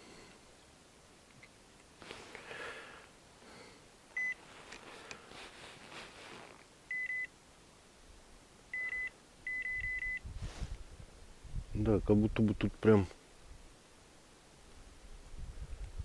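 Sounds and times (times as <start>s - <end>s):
high-pitched alarm beeps: 8.8s - 10.2s.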